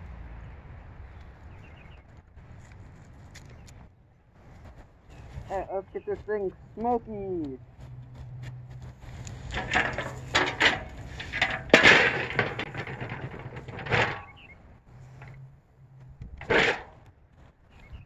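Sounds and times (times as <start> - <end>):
scraping and rustling on metal barrel: 9.0 - 15.5, 16.3 - 17.1.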